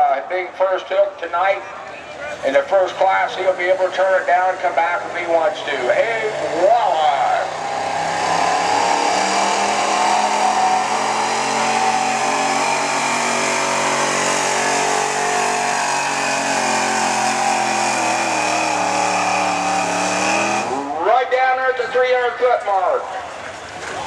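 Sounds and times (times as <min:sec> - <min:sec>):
pickup engine running under load: 0:01.8 - 0:21.6.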